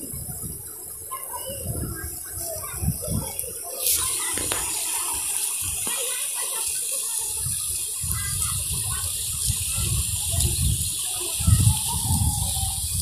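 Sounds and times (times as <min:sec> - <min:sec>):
water rushing hiss: 0:00.0 - 0:13.0.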